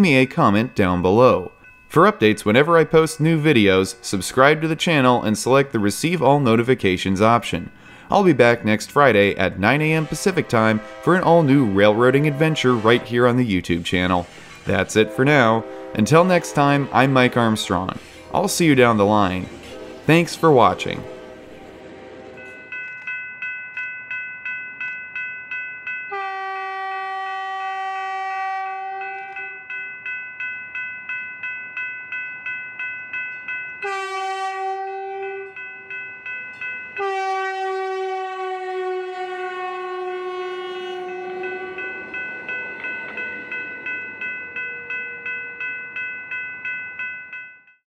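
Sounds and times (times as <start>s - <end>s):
railroad crossing bell ringing: 0.0s - 47.8s
train rumble passing: 1.1s - 47.1s
train horn blasts: 9.7s - 13.4s, 14.8s - 22.5s, 26.1s - 29.5s, 33.8s - 35.6s, 37.0s - 42.0s.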